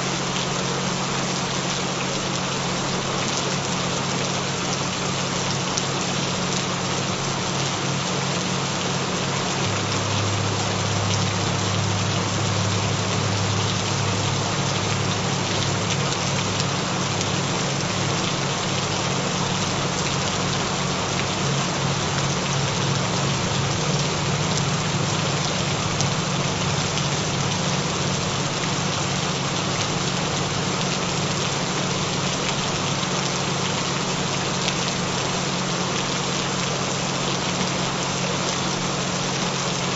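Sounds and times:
gentle rain hiss: 0.0s - 39.9s
low steady humming tones: 6.5s - 33.3s.

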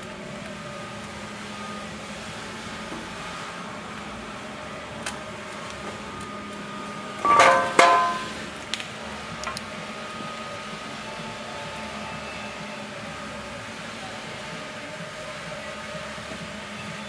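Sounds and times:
steady shop hum: 0.0s - 17.0s
metallic clanks: 7.2s - 8.4s.

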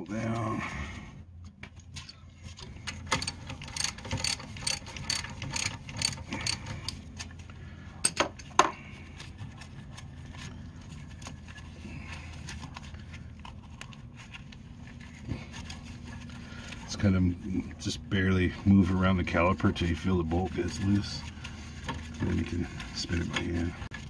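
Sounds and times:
hand ratchet clicking: 3.1s - 7.0s.

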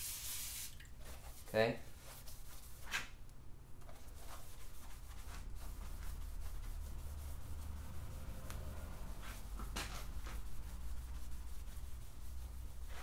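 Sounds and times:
towel wiping metal: 4.1s - 13.0s.

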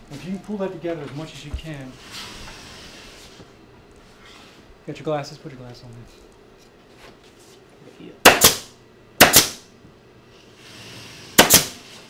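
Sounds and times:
staple gun firing: 8.3s - 9.6s, 11.4s - 11.8s.

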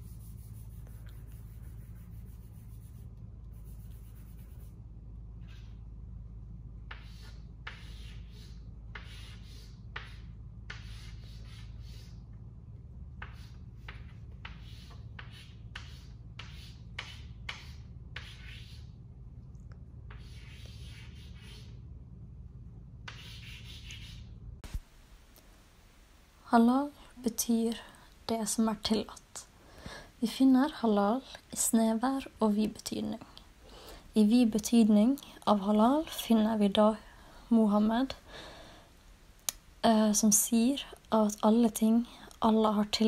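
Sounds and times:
chalk rubbed off chalkboard: 0.0s - 4.7s, 6.9s - 12.2s, 13.2s - 18.9s, 20.1s - 21.8s, 23.1s - 24.2s
chalk scratching on chalkboard: 0.0s - 4.7s, 6.9s - 12.2s, 13.2s - 18.9s, 20.1s - 21.8s, 23.1s - 24.3s
low hum: 0.0s - 43.0s.

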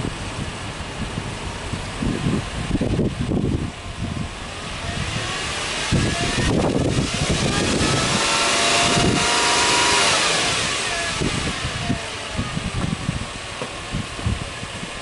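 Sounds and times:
car engine revving: 0.0s - 15.0s.

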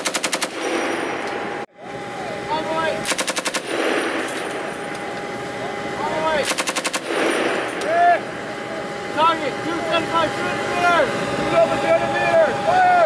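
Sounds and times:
machine gun bursts: 0.0s - 1.3s, 3.0s - 4.6s, 6.4s - 7.8s.

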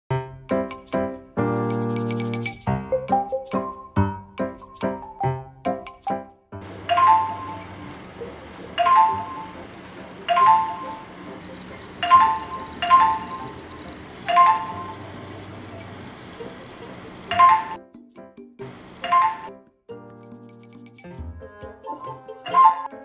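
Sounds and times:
background music: 0.1s - 23.0s
smartphone notification chime: 6.8s - 9.6s, 10.2s - 11.3s, 12.0s - 16.0s, 17.3s - 17.8s, 19.0s - 19.5s.

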